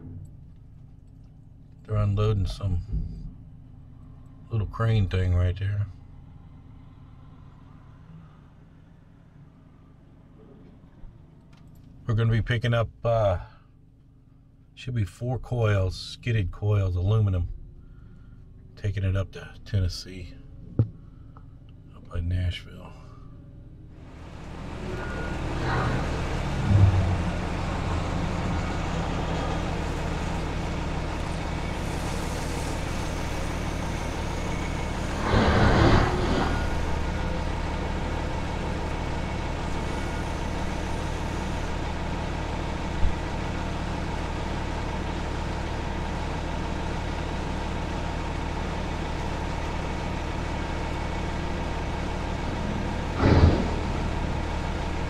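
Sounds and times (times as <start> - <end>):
heavy vehicle engine idling: 0.0 - 15.9, 16.7 - 55.0
rush of noise: 35.1 - 37.2, 53.2 - 54.0.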